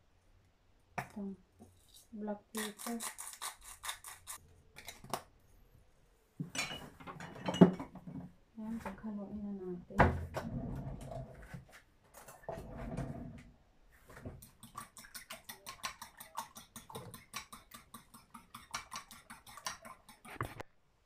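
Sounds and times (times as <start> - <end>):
utensil beating eggs in bowl: 14.3 - 20.7.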